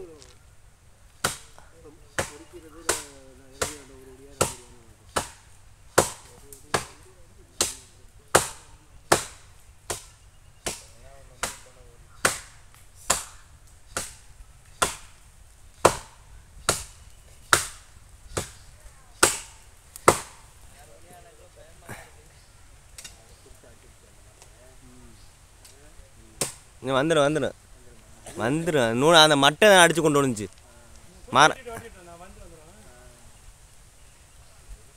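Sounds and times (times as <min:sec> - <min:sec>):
blade chopping into tree: 0:02.2 - 0:07.0, 0:07.6 - 0:15.2, 0:15.8 - 0:18.6, 0:19.2 - 0:20.4.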